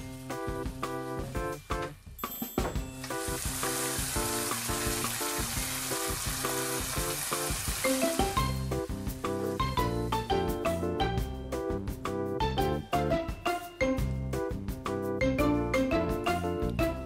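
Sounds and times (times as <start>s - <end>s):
background music: 0.0s - 17.0s
food sizzling in a frying pan: 3.0s - 9.9s.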